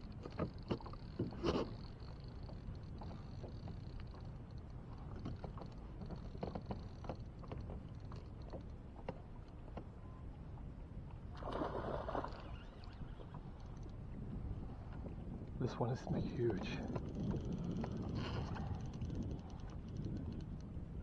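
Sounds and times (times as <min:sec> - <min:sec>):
water around a boat: 0:00.0 - 0:21.0
wind: 0:00.0 - 0:21.0
light ticks: 0:02.0 - 0:09.9, 0:12.8 - 0:14.0, 0:16.5 - 0:20.8.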